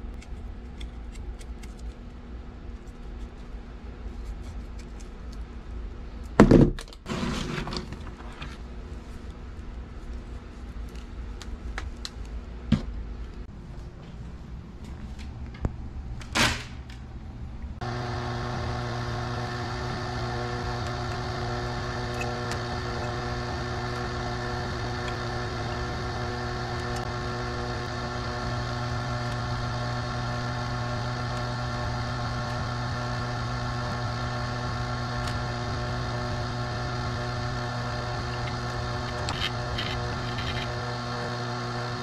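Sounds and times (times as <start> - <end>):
electric motor humming: 17.8 - 42.0.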